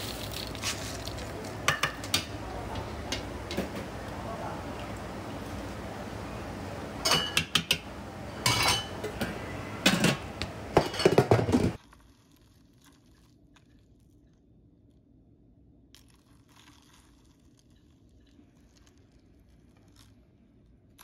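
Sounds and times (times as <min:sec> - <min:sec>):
ice clinking in paper cup: 0:00.0 - 0:02.4, 0:16.0 - 0:20.2
metal ladle clinking against pot: 0:08.4 - 0:11.3.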